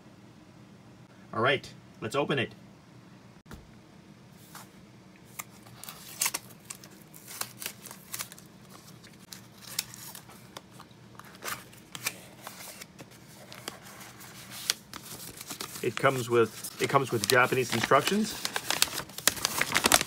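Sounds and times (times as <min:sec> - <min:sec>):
packing tape tearing: 0:05.3 - 0:10.3, 0:14.5 - 0:20.0
cardboard and paper rustling: 0:05.3 - 0:20.0.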